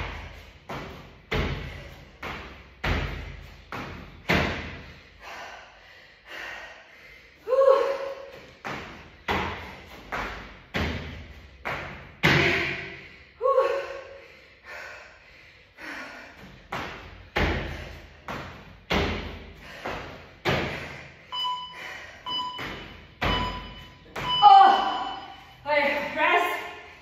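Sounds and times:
workout timer beeping: 21.2s - 26.1s.

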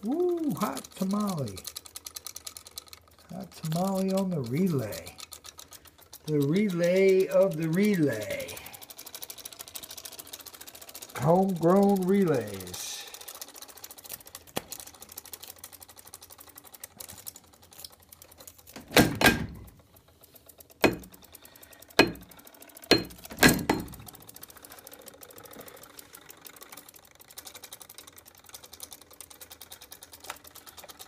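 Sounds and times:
sharp knocks: 20.8s - 21.2s, 22.0s - 22.3s, 22.9s - 24.0s.

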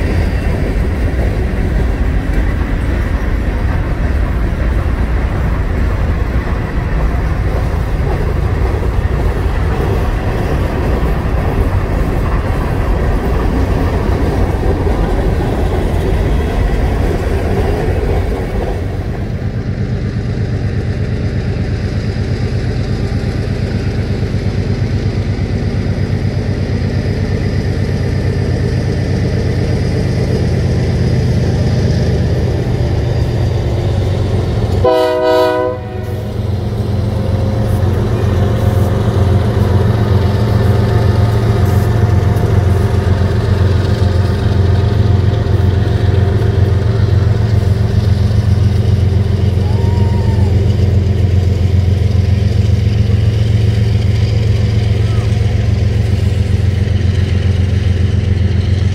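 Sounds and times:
train low rumble: 0.0s - 58.9s
wheels clattering on rail: 0.0s - 58.9s
train horn blast: 34.7s - 36.5s.

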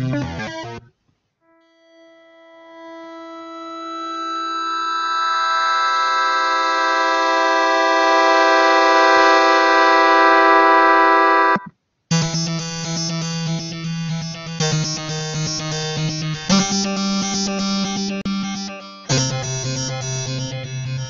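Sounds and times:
sustained retro synth chord: 1.5s - 21.0s
fast video-game-style synth pattern: 11.2s - 21.0s.

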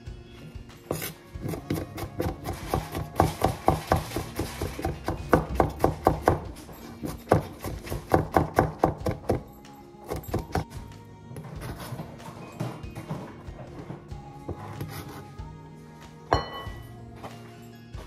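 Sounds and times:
knife chopping on plastic board: 0.9s - 6.5s, 7.3s - 9.4s.

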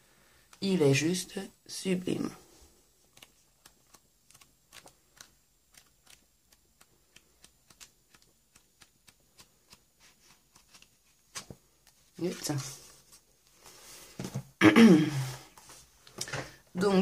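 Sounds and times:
paper sheets flicking: 3.1s - 11.6s.

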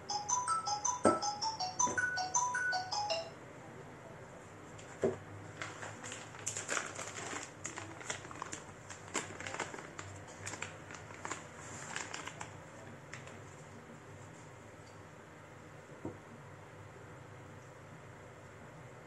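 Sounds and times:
packaging crinkling: 5.5s - 13.4s.

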